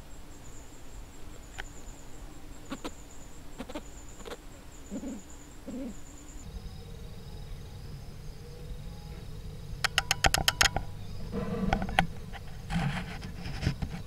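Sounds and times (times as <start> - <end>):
high pulsing chirr: 0.0 - 13.4
low steady hum: 0.0 - 14.0
short low bird-like calls: 3.6 - 12.4
sharp clicks: 9.8 - 10.9.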